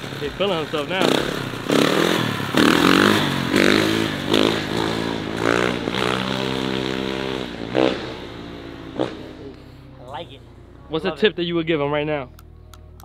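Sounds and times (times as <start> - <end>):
dirt bike engine revving: 0.0 - 9.9.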